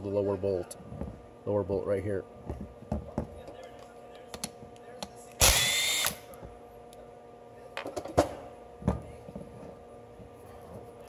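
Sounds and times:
power tool whirring: 0:05.4 - 0:06.2.

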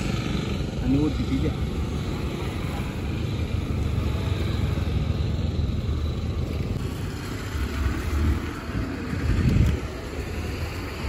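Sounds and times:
street traffic rumble: 0:00.0 - 0:11.0.

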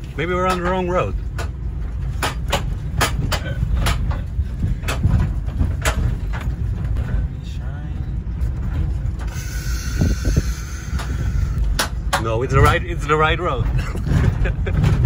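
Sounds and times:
car knocking and rattling: 0:00.0 - 0:07.5, 0:11.0 - 0:15.0
tyres rumbling on dirt track: 0:00.0 - 0:15.0.

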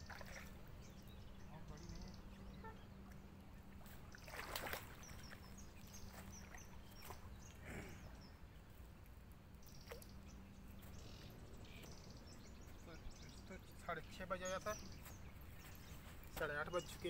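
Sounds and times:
fish splashing in water: 0:04.0 - 0:05.6.

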